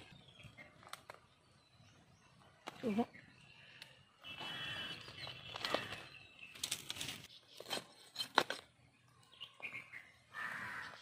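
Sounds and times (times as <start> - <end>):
clicks and crackles of handling: 0.6 - 1.3.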